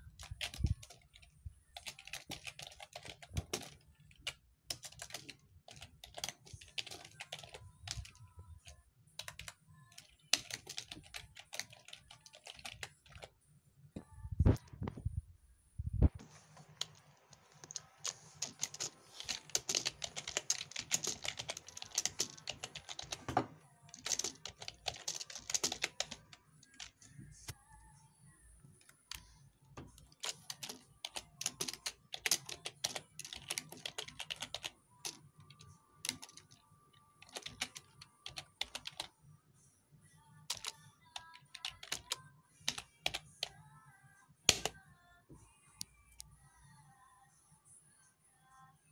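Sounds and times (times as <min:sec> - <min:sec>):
typing on computer keyboard: 0:00.0 - 0:13.3, 0:16.7 - 0:27.1, 0:29.9 - 0:39.1, 0:40.5 - 0:43.6, 0:44.5 - 0:44.8.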